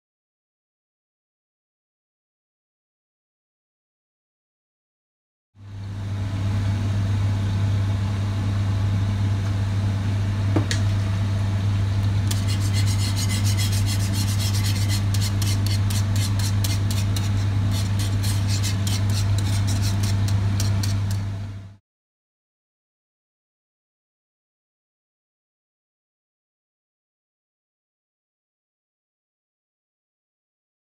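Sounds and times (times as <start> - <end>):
whisk scraping pan: 12.2 - 21.3.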